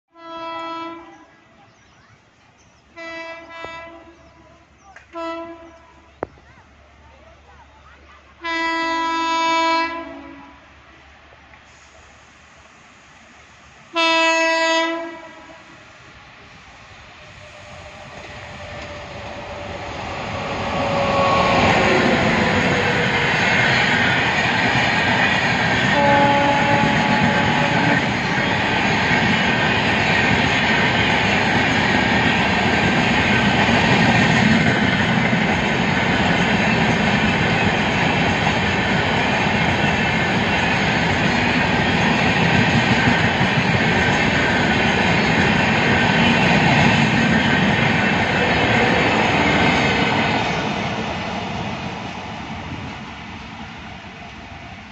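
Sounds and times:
train horn: 0:00.1 - 0:01.4, 0:03.0 - 0:06.1, 0:08.4 - 0:10.7, 0:13.9 - 0:15.8, 0:25.8 - 0:28.9
train wheels rumbling and clattering: 0:15.6 - 0:54.9.

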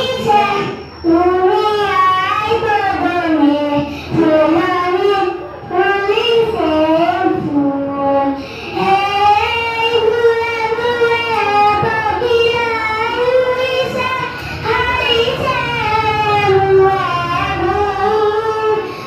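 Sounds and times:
boy singing into microphone: 0:00.0 - 0:19.0.

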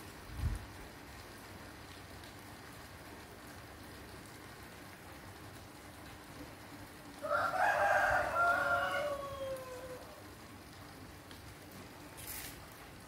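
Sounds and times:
aquarium pump water hiss: 0:00.0 - 0:13.0
rooster crowing: 0:07.2 - 0:10.3.

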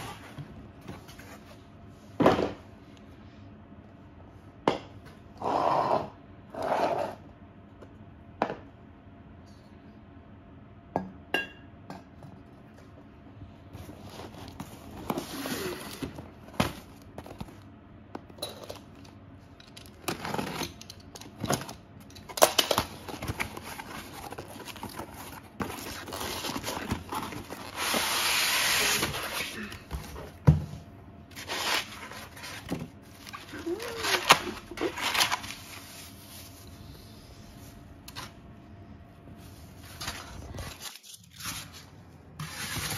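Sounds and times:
packing tape tearing: 0:14.1 - 0:16.2, 0:33.2 - 0:35.8.

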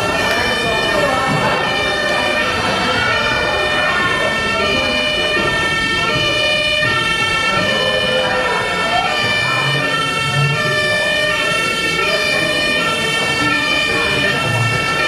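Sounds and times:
two-tone emergency siren: 0:00.0 - 0:15.0.

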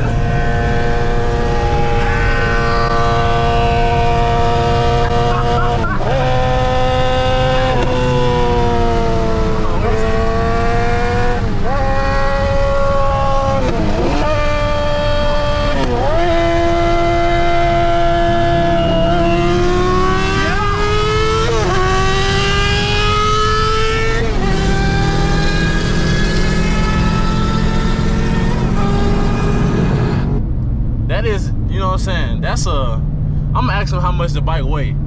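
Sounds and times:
car and motorcycle engines revving: 0:00.0 - 0:35.0.

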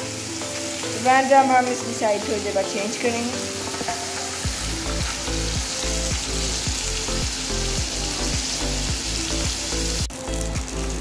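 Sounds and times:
food sizzling in oil: 0:00.0 - 0:11.0
low rhythmic music beat: 0:03.6 - 0:11.0.

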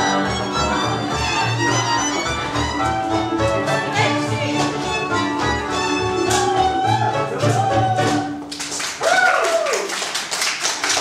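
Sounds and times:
string band playing dance tune: 0:00.0 - 0:08.5
hand clapping: 0:06.2 - 0:06.5, 0:07.4 - 0:11.0
loud whooping shout: 0:09.0 - 0:10.0.

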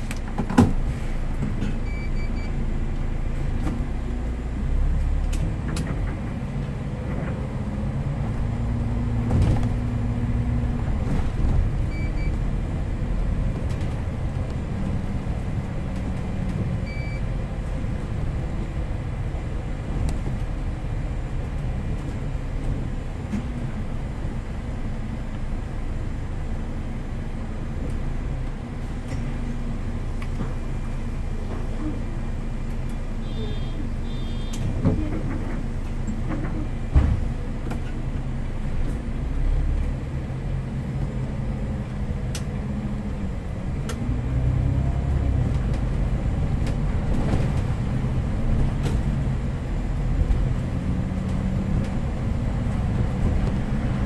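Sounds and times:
bus engine and road rumble: 0:00.0 - 0:54.0
short electronic beeps: 0:01.8 - 0:02.6, 0:16.8 - 0:17.2.

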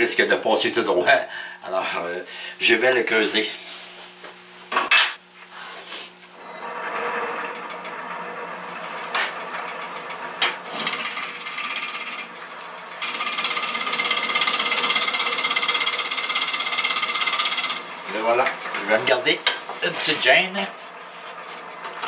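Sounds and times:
wood lathe motor whine: 0:06.2 - 0:22.0
drill bit cutting wood: 0:06.3 - 0:07.7, 0:13.0 - 0:17.8.

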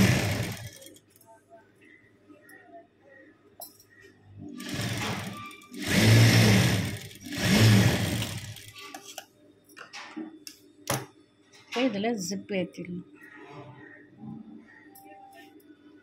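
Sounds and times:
industrial sewing machine stitching: 0:00.0 - 0:01.0, 0:04.6 - 0:08.8.

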